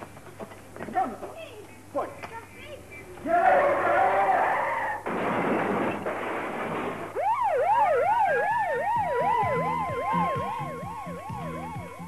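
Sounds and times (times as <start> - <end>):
wailing siren: 7.1 - 12.0
warbling siren: 7.1 - 12.0.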